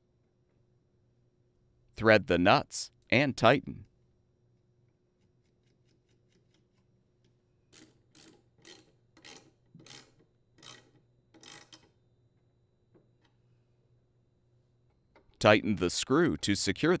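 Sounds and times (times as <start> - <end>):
ratchet wrench strokes: 7.7 - 11.9.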